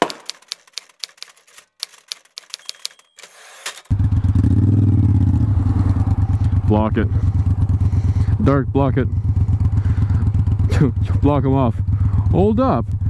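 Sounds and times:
typewriter key clacks: 0.0s - 3.9s
motorcycle engine idling: 3.9s - 13.0s.

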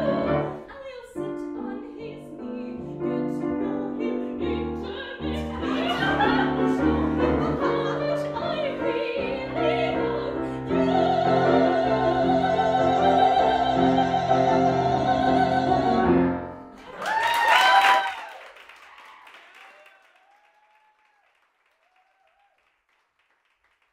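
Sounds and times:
woman singing: 0.0s - 16.2s
grand piano accompaniment: 0.0s - 16.9s.

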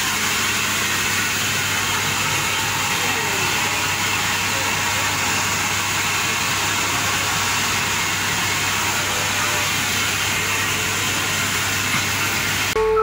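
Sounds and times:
steam hissing: 0.0s - 12.8s.

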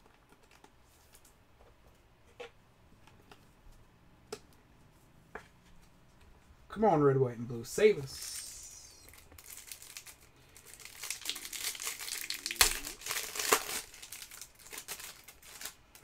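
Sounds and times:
cellophane crinkling and tearing: 8.3s - 16.0s.

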